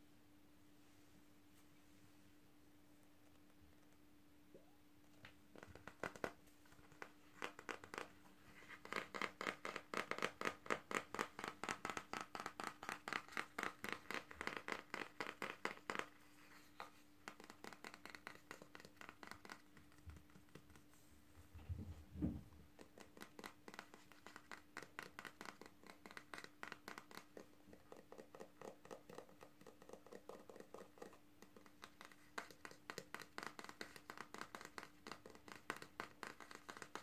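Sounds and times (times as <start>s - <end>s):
scratching on plastic hairbrush: 5.5s - 20.7s.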